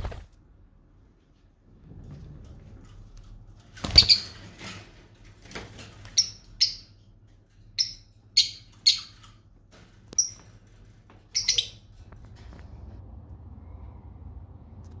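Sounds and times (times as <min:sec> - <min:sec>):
lovebirds chirping: 0:07.8 - 0:09.3, 0:11.3 - 0:12.0.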